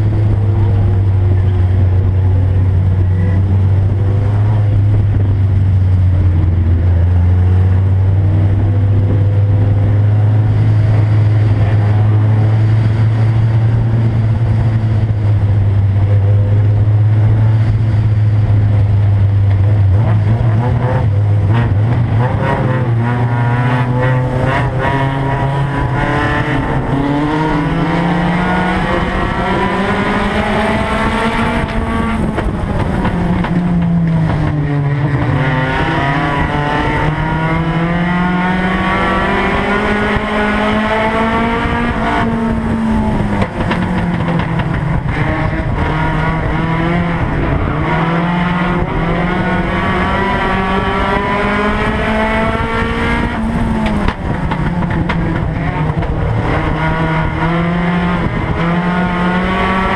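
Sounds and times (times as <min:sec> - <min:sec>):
race car engine revving: 0:00.0 - 0:59.9
road and cabin noise: 0:00.0 - 0:59.9.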